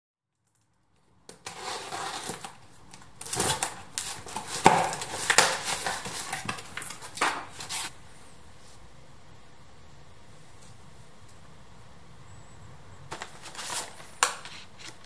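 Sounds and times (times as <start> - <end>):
blade slitting packing tape: 1.3 - 7.9, 13.1 - 15.0
cardboard tearing and rustling: 1.3 - 7.9, 13.1 - 15.0.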